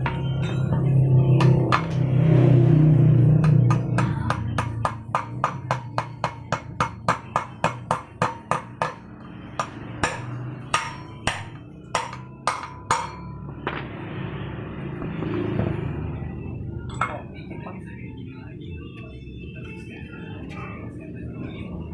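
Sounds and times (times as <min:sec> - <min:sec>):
hammer striking metal: 0:00.0 - 0:02.2, 0:03.4 - 0:14.0, 0:16.9 - 0:17.4.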